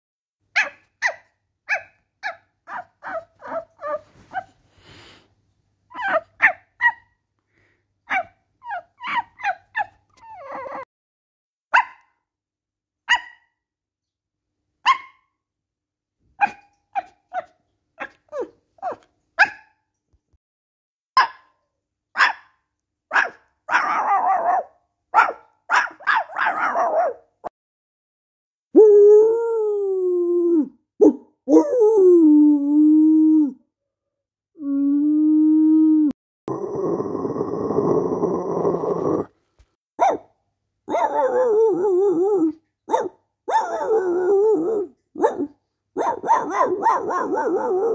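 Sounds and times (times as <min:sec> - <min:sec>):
person imitating puppy yips: 0:00.6 - 0:04.5, 0:05.9 - 0:07.2, 0:08.1 - 0:10.9, 0:16.4 - 0:19.7, 0:23.1 - 0:27.2, 0:34.6 - 0:39.3, 0:40.9 - 0:47.9
breathy sound: 0:04.7 - 0:05.4
wavering whimper: 0:08.6 - 0:10.9, 0:34.6 - 0:39.3
person imitating dog yapping: 0:34.6 - 0:39.3.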